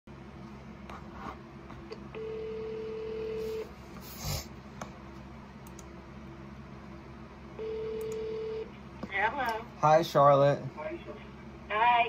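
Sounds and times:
telephone ringback tone: 0:02.2 - 0:03.7, 0:07.6 - 0:08.6.

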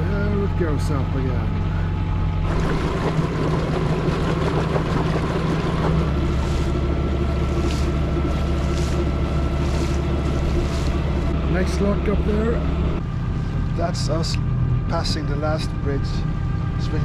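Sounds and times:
boat diesel engine running: 0:00.0 - 0:17.0
wind: 0:00.0 - 0:17.0
water noise: 0:01.6 - 0:13.0.

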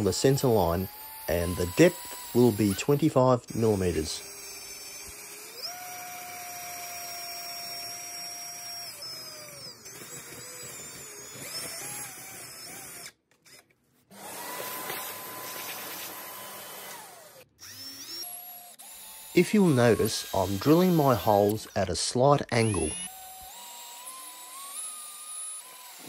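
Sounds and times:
cordless drill boring into wood: 0:00.0 - 0:26.0
vacuum hose sucking: 0:14.2 - 0:17.0.

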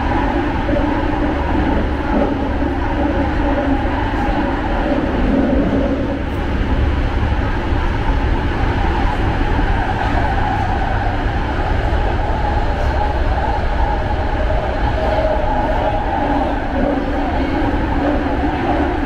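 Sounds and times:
constant tonal hum: 0:00.0 - 0:19.0
train wheels rumbling on track: 0:00.0 - 0:19.0.

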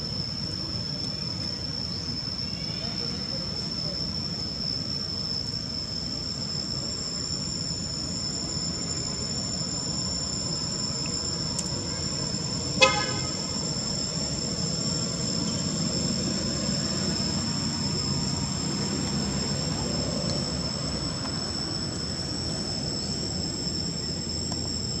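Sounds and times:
high-pitched insect drone: 0:00.0 - 0:25.0
low traffic rumble: 0:05.5 - 0:25.0
vehicle horn toot: 0:12.8 - 0:13.5.

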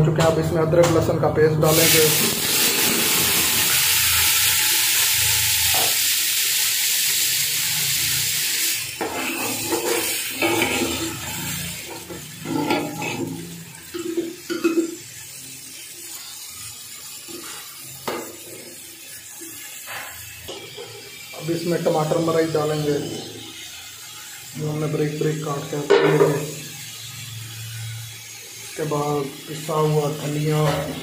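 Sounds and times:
paste sizzling in hot oil: 0:01.6 - 0:31.0
metal spoon scraping pot: 0:09.0 - 0:11.6.

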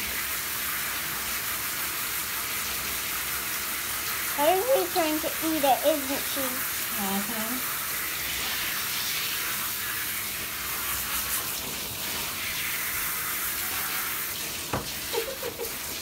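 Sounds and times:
shower head spraying water: 0:00.0 - 0:16.0.

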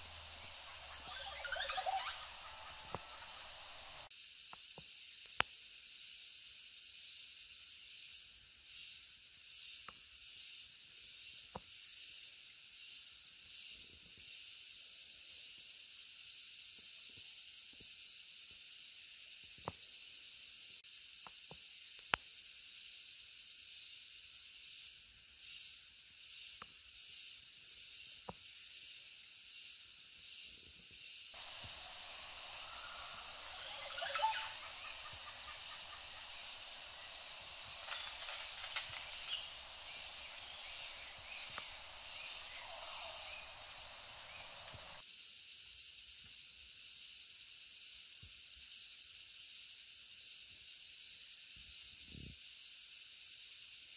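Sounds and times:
stream running: 0:00.0 - 0:04.1, 0:31.4 - 0:45.0
sharp clicks: 0:31.6 - 0:42.4.

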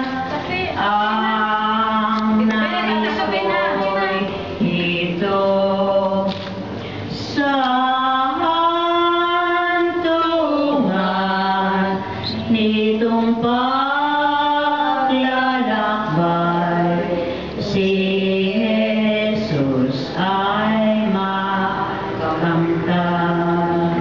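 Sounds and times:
voices singing a hymn: 0:00.0 - 0:24.0
singers breathing: 0:06.7 - 0:07.2.

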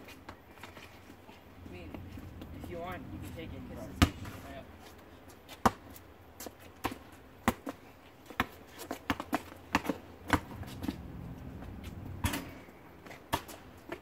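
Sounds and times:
basketball bouncing on asphalt: 0:03.8 - 0:14.0.

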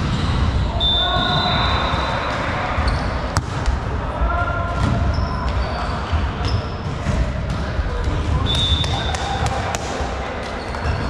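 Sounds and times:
shoes squeaking on court floor: 0:01.2 - 0:03.4, 0:05.1 - 0:06.8
volleyball being hit: 0:03.3 - 0:03.8.

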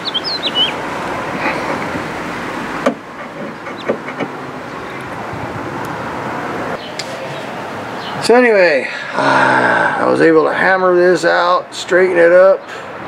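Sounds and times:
bird chirps: 0:00.0 - 0:00.8
outdoor background noise: 0:00.0 - 0:13.0.

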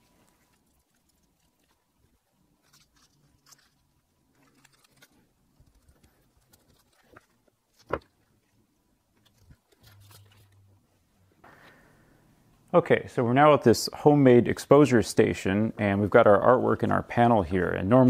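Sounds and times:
plastic film rustling and crackling: 0:00.0 - 0:08.3, 0:09.2 - 0:10.7.

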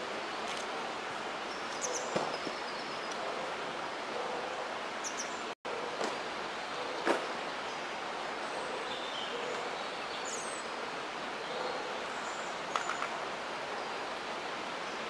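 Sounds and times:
outdoor background noise by water: 0:00.0 - 0:15.0.

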